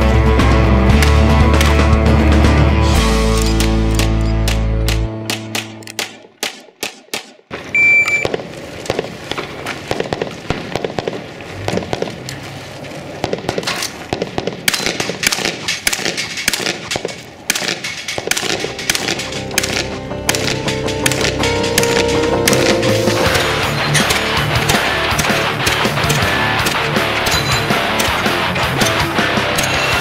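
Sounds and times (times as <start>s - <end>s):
music: 0.0s - 6.0s, 18.4s - 30.0s
gunshots: 3.2s - 12.3s, 13.2s - 30.0s
shot timer beep: 7.7s - 8.3s.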